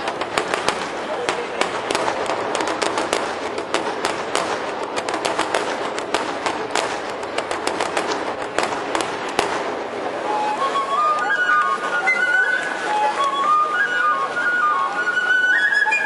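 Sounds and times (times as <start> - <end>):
sharp claps close by: 0.0 - 9.8.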